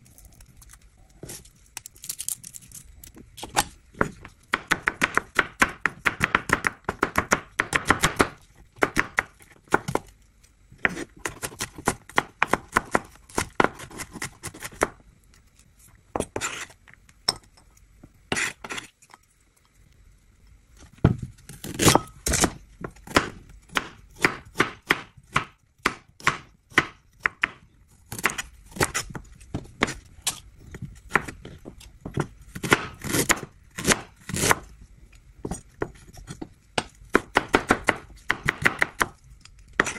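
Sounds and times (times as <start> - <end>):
knife chopping on cutting board: 4.0 - 10.1, 36.8 - 39.2.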